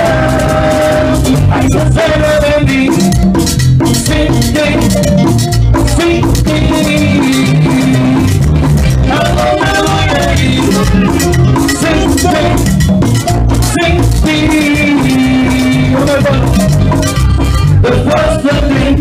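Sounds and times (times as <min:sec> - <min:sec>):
latin dance band playing: 0:00.0 - 0:19.0
rattling shaker: 0:02.4 - 0:17.7.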